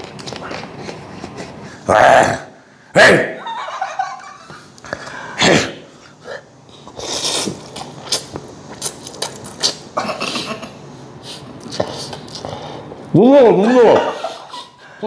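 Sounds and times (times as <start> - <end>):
man coughing: 5.4 - 5.9
man slurping noodles: 6.9 - 9.9.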